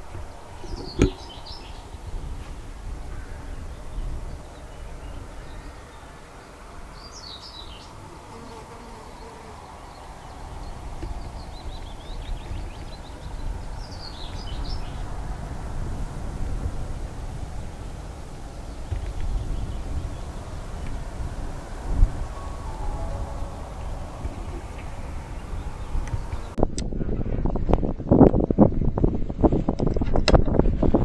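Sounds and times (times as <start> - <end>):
small birds singing: 0.0 - 15.4, 17.5 - 26.6
wind rumble on microphone: 0.0 - 31.0.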